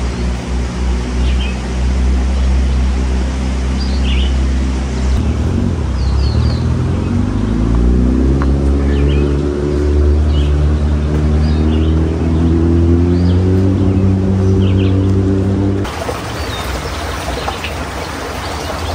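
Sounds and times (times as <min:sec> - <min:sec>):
vehicle engine humming: 0:00.0 - 0:18.9
bird chirps: 0:03.6 - 0:15.4.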